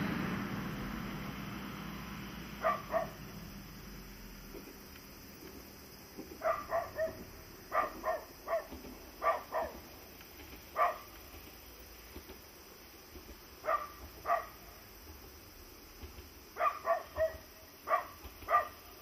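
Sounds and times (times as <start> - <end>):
dog barking: 2.6 - 3.2, 6.4 - 9.8, 10.8 - 11.1, 13.6 - 14.6, 16.6 - 18.9.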